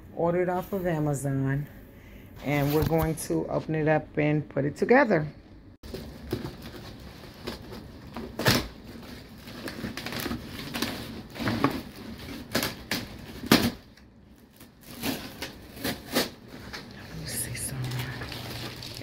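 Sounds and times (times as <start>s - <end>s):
plastic wrap crinkling: 5.8s - 19.0s.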